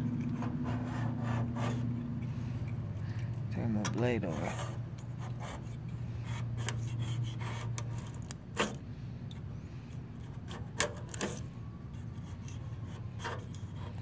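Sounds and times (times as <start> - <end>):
scraper scraping metal panel: 0.0 - 2.3, 4.0 - 8.9, 10.1 - 14.0
steady low hum: 0.0 - 14.0.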